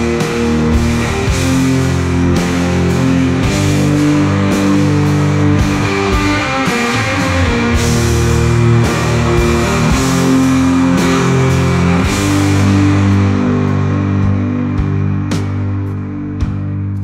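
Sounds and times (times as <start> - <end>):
rock guitar chords: 0.0 - 17.0.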